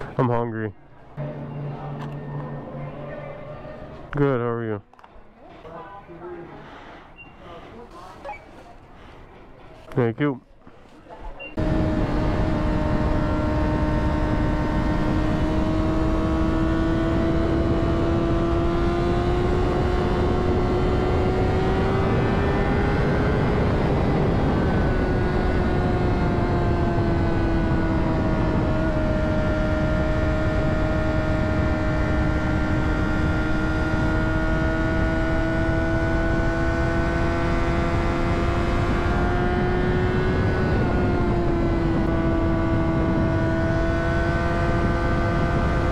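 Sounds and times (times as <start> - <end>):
motorcycle engine at high revs: 11.5 - 45.9
heavy wind noise: 38.6 - 45.9.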